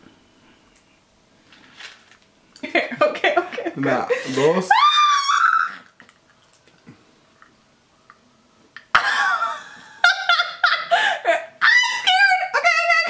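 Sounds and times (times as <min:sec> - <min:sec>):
woman laughing: 0:02.6 - 0:05.8, 0:08.9 - 0:13.0.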